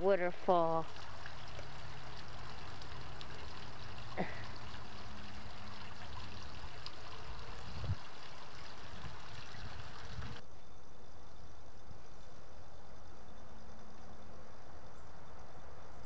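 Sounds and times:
water running in stream: 0:00.0 - 0:10.4.

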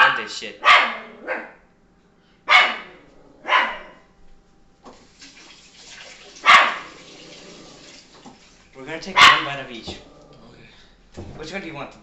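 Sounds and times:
dog barking: 0:00.0 - 0:01.6, 0:02.5 - 0:04.0, 0:06.4 - 0:07.0, 0:09.2 - 0:09.6.

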